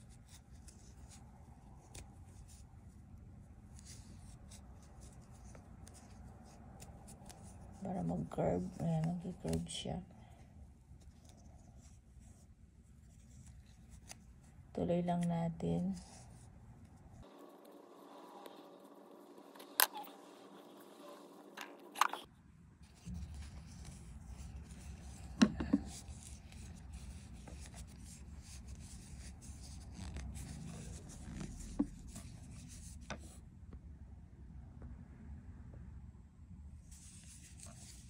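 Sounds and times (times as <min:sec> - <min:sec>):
yarn rubbing: 0:22.8 - 0:33.4.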